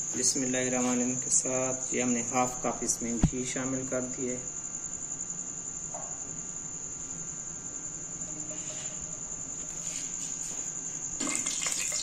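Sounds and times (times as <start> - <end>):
cricket trilling: 0.0 - 12.0
liquid poured into a pot: 11.2 - 12.0.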